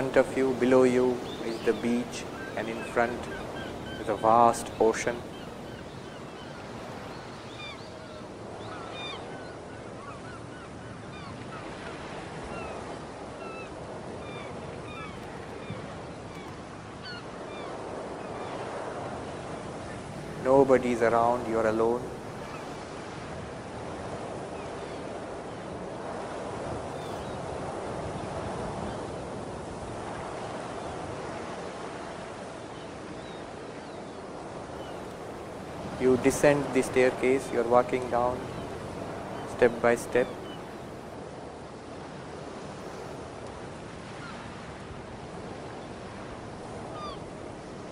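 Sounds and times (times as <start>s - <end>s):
ocean waves washing on shore: 0.0s - 47.9s
bird chirps: 1.2s - 10.2s.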